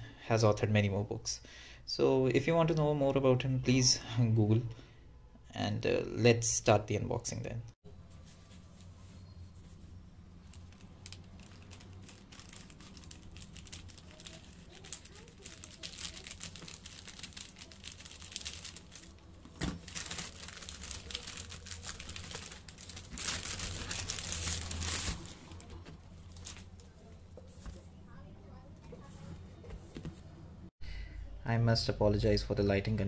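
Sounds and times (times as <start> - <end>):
plastic bag crinkling: 10.2 - 26.8.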